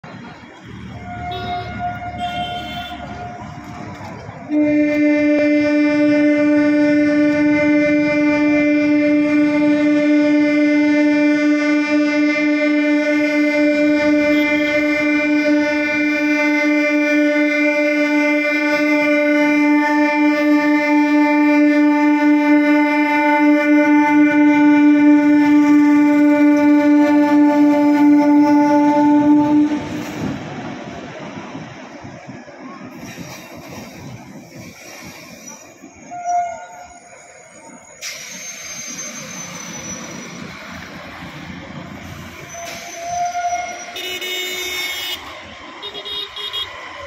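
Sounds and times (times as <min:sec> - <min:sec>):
train horn long low note: 0:00.9 - 0:03.8, 0:04.4 - 0:30.5, 0:42.1 - 0:46.8.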